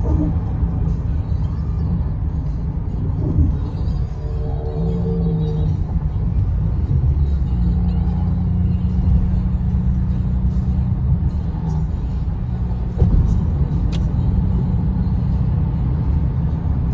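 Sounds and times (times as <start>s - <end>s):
tyre and road noise: 0.0s - 16.9s
sharp tick: 13.8s - 14.1s.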